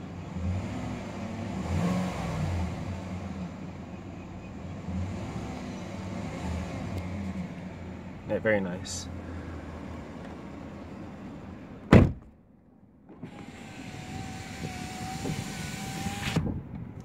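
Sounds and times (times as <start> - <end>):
car door shutting: 11.9 - 12.3, 13.1 - 16.6
power window motor whining: 13.1 - 16.5.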